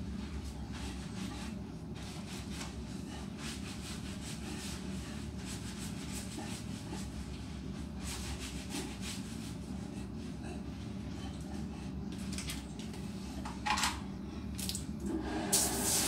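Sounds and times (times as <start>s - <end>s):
steady low hum: 0.0s - 16.0s
hands rubbing wet fur: 0.1s - 10.9s.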